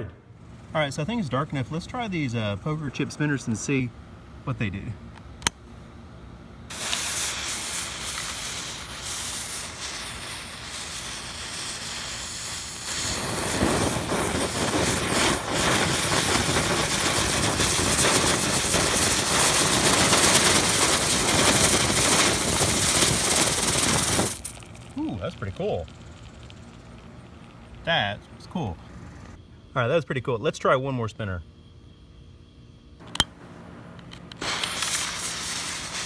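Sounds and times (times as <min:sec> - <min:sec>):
spinner firework hissing: 0:06.7 - 0:29.4, 0:34.3 - 0:36.0.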